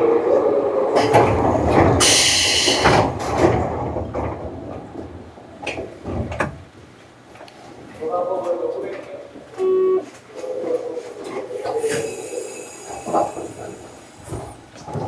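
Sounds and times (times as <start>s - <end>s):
train doors knocking shut: 1.0s - 6.7s.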